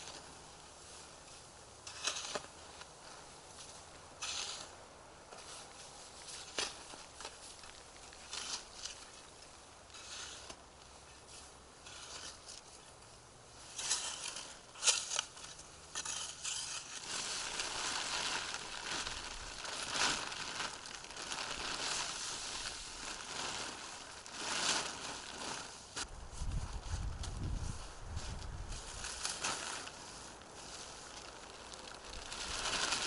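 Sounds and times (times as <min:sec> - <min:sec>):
plastic tarp rustling: 0:13.7 - 0:33.0
snow crunching underfoot: 0:16.8 - 0:33.0.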